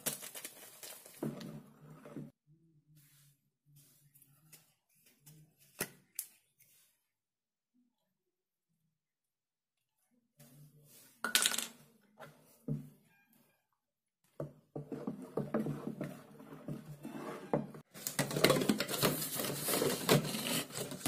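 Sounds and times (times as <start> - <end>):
wooden spoon scraping plastic basin: 1.2 - 2.4, 14.3 - 21.0
frothy liquid stirred: 14.3 - 19.8
plastic bottles clattering: 18.0 - 21.0.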